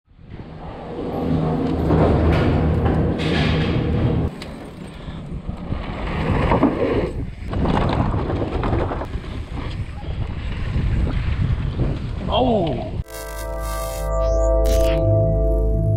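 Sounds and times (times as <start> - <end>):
bike tyres clattering over wooden boards: 1.8 - 10.8
wind buffeting microphone: 5.2 - 13.0
music: 13.1 - 15.9.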